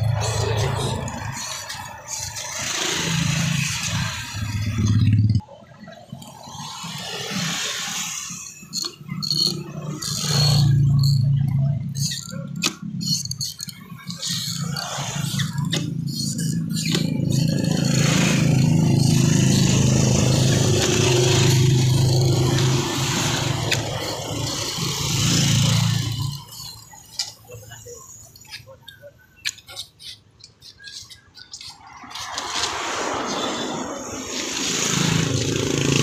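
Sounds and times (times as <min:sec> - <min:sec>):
vehicle engine running: 0:08.3 - 0:27.8.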